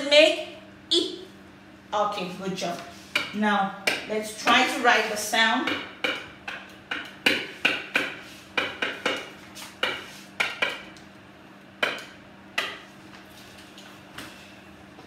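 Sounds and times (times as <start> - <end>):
taps on a whiteboard: 5.6 - 10.8.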